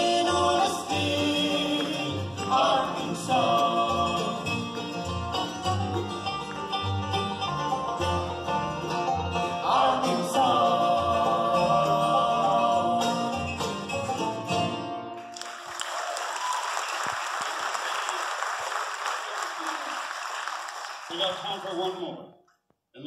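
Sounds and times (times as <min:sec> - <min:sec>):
bluegrass band playing: 0:00.0 - 0:15.3
audience applauding: 0:15.3 - 0:22.2.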